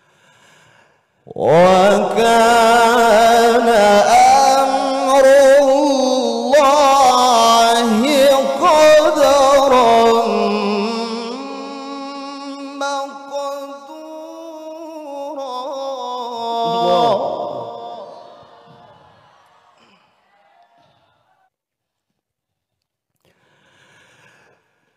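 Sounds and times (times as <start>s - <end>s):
man reciting melodically into microphone: 1.3s - 18.7s.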